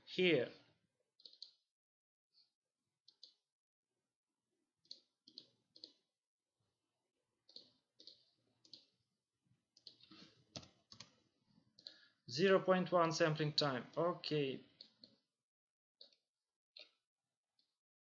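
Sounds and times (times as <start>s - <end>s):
mouse and keyboard clicks: 1.2s - 1.6s, 3.1s - 3.4s, 4.8s - 6.0s, 7.4s - 8.9s.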